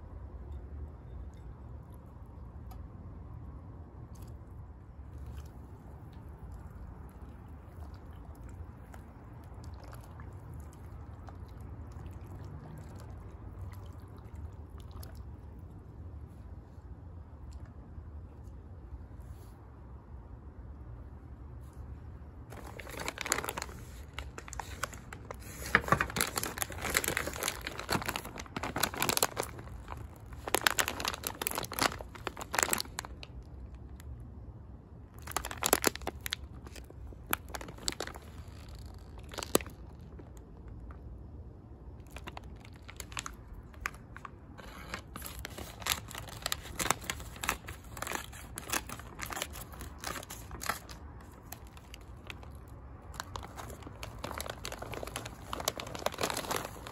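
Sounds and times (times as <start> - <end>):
plastic bag crinkling: 22.5 - 34.0, 35.2 - 40.9, 42.0 - 56.9.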